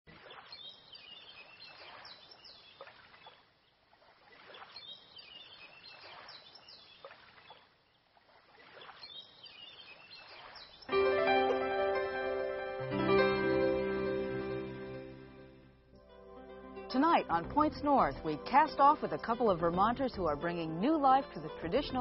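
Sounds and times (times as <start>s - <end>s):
oars swishing through water: 0.1s - 11.5s, 16.9s - 22.0s
small birds chirping: 0.2s - 3.8s, 4.4s - 10.9s.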